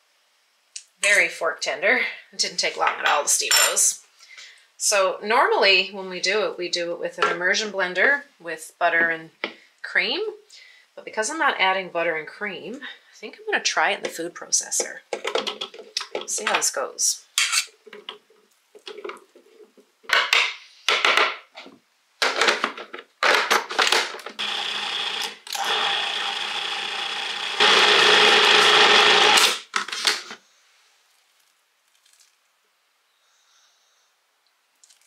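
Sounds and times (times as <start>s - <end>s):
food processor motor: 24.3s - 29.7s.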